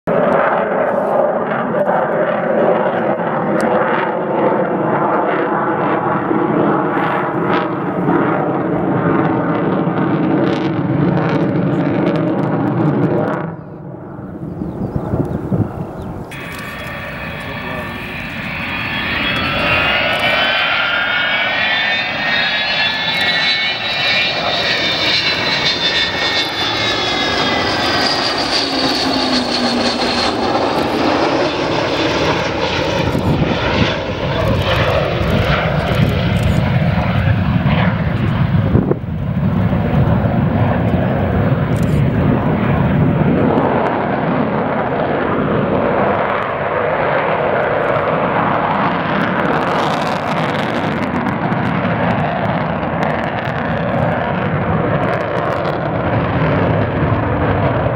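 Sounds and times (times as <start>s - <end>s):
deep jet rumble: 0.1s - 57.9s
high jet whine: 0.1s - 57.9s.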